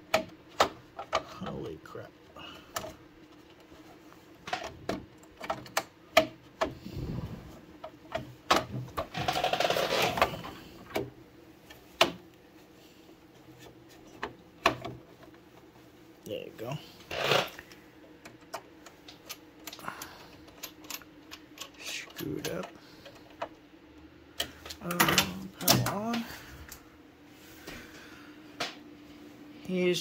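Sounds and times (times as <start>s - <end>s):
plastic cover rattling: 8.9s - 10.4s.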